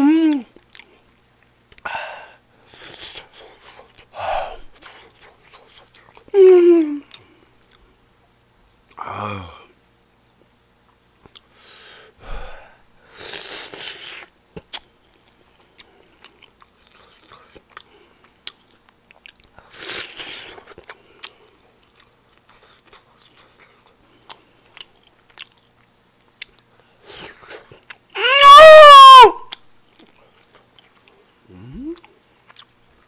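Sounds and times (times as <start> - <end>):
person chewing food: 0.3 - 1.9, 2.8 - 6.3, 7.0 - 8.1, 11.2 - 11.6, 13.2 - 28.1, 29.5 - 33.0.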